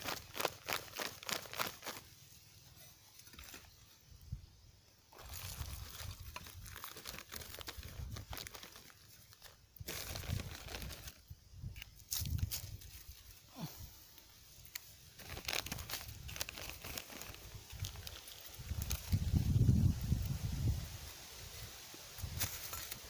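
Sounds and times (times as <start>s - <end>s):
plastic bags crinkling: 0.0s - 2.1s, 5.1s - 11.2s, 15.1s - 19.2s.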